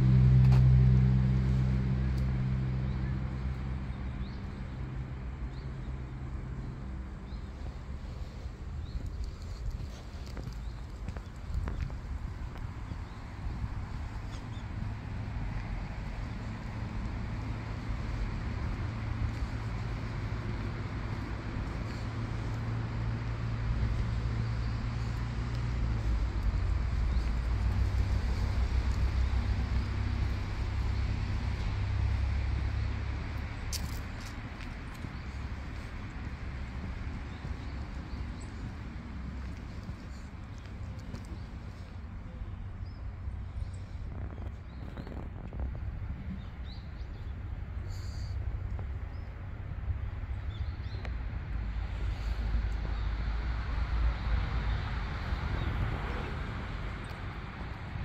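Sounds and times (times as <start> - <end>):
low rumble of traffic: 0.0 - 58.0
vehicle engine humming: 0.0 - 58.0.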